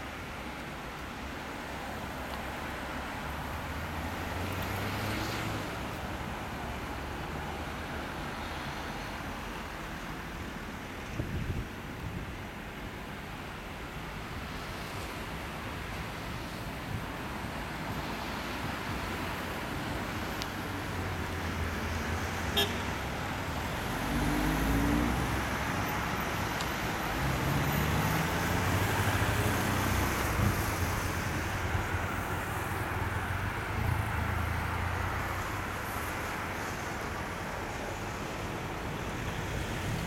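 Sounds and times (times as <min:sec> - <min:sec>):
small cars passing close by: 0:03.3 - 0:07.6, 0:17.7 - 0:37.4.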